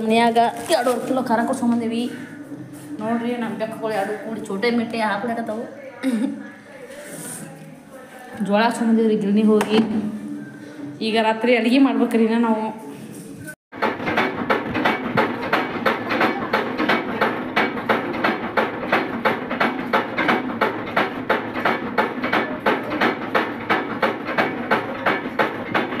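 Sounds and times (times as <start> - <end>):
mill machinery knocking: 13.7 - 26.0.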